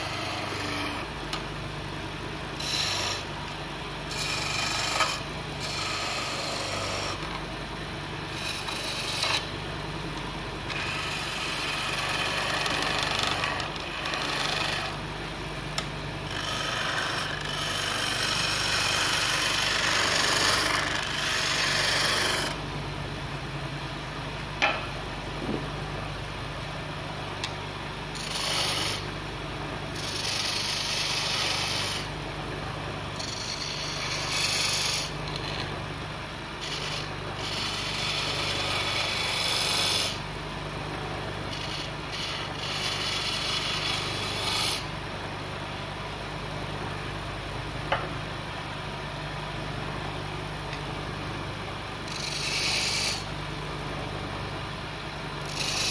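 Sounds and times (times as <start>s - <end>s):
file scraping on spinning wood: 0.0s - 1.4s, 2.5s - 7.4s, 8.3s - 9.5s, 10.6s - 15.0s, 16.3s - 22.6s, 28.1s - 29.2s, 29.9s - 32.2s, 33.0s - 35.8s, 36.5s - 40.3s, 41.2s - 44.9s, 52.0s - 53.3s, 55.4s - 55.9s
lathe motor hum: 0.0s - 9.5s, 10.6s - 15.0s, 15.8s - 22.6s, 27.4s - 29.1s, 29.8s - 44.8s, 51.8s - 54.4s, 55.0s - 55.9s.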